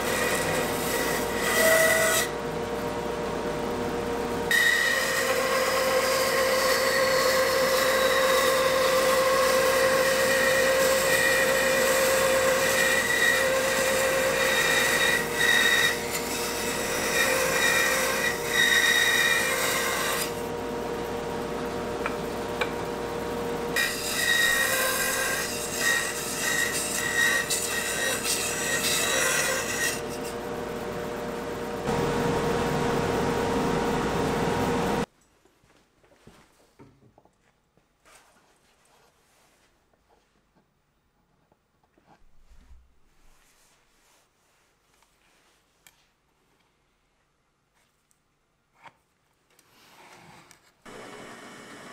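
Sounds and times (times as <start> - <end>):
bandsaw motor whine: 0.0 - 35.1, 50.9 - 51.9.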